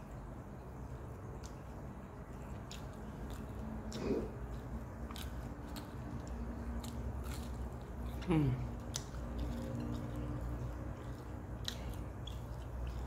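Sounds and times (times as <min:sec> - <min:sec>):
person chewing food: 0:00.6 - 0:13.0.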